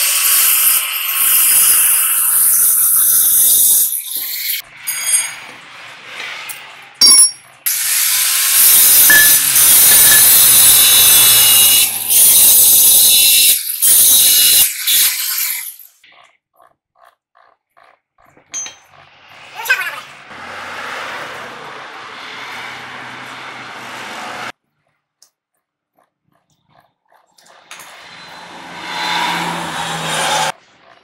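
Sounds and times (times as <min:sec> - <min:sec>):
angle grinder grinding steel: 0:00.0 - 0:16.0, 0:27.4 - 0:31.0.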